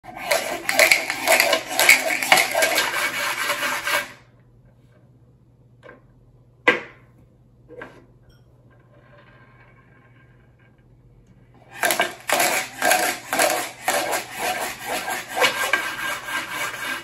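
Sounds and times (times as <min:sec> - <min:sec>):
dice clattering in a plastic cup: 0:00.3 - 0:03.0, 0:11.8 - 0:14.3.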